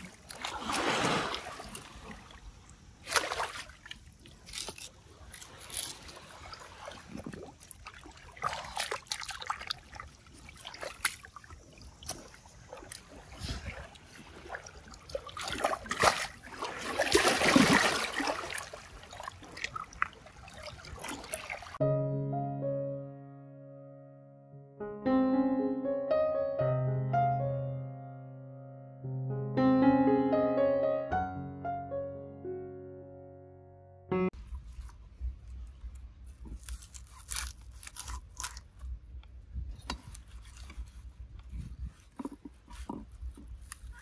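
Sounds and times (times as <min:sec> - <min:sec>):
water splashing and trickling: 0:00.0 - 0:21.8.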